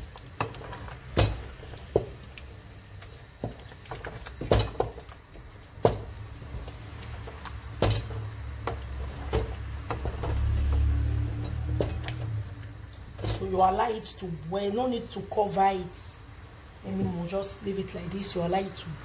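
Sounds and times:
wooden spoon stirring soup: 0.0 - 13.9
low steady hum: 0.0 - 19.0.

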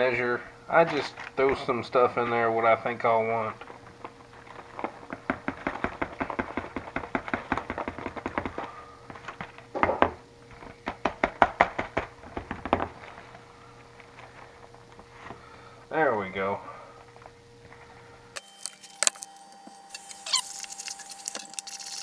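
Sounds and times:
dry mix rattling into plastic bowl: 4.4 - 9.4.

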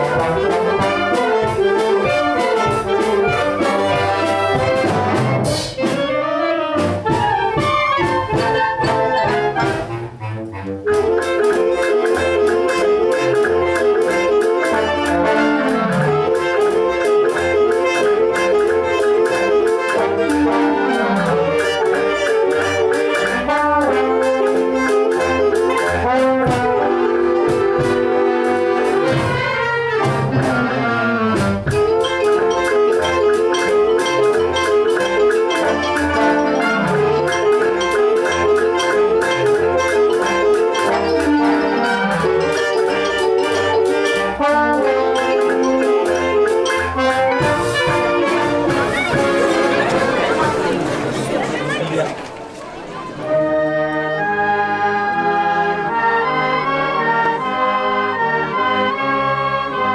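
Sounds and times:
wind band playing: 0.0 - 59.9.

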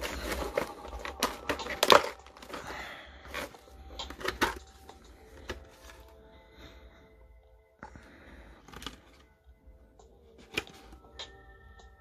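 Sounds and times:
faint background music: 0.0 - 12.0
plastic tray and box clicking: 0.2 - 2.6.

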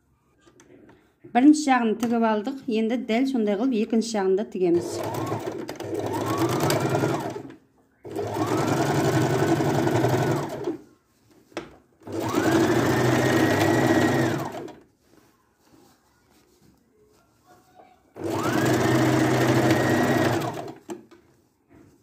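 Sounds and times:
sewing machine stitching: 4.8 - 10.8, 12.0 - 14.8, 18.2 - 21.0.

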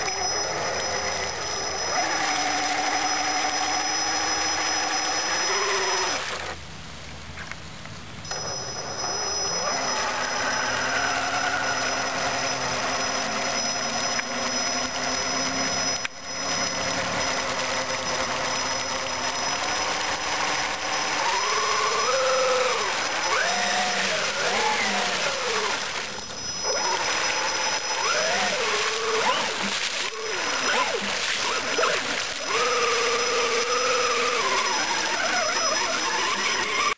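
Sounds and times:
electric motor whining: 0.0 - 6.6, 8.3 - 36.9
tyres churning through water: 9.6 - 36.9.

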